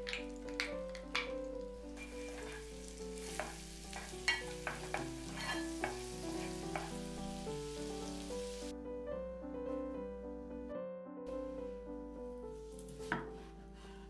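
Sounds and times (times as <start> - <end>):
wooden spoon knocking pan: 0.0 - 7.1
garlic sizzling in butter: 0.0 - 8.7.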